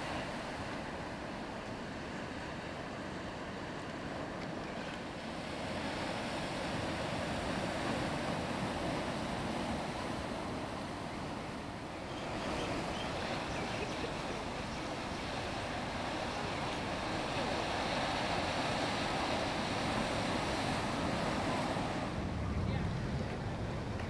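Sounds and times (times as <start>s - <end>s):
ocean surf washing: 0.0s - 24.0s.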